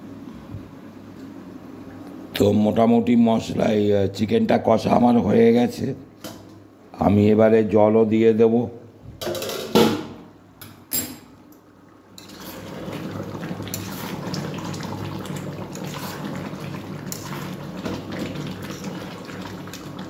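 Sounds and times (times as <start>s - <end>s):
water pouring into hot pan: 12.3s - 20.0s.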